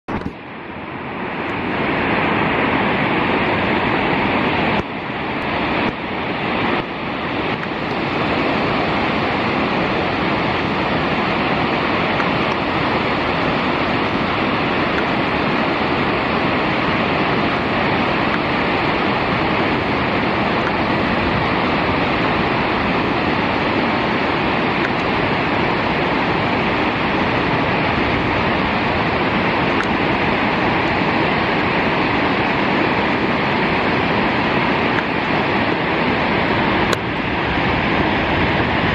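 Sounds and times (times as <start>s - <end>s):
waterfall rushing: 0.1s - 38.9s.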